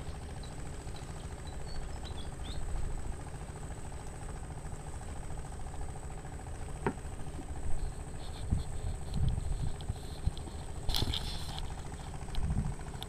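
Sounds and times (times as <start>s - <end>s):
engine idling: 0.0s - 13.0s.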